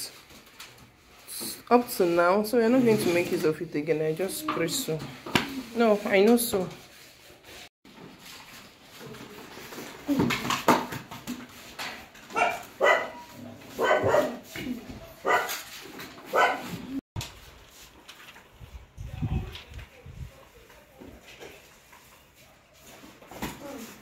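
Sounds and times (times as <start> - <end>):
dog barking: 12.3 - 14.5, 15.1 - 15.6, 16.3 - 16.8.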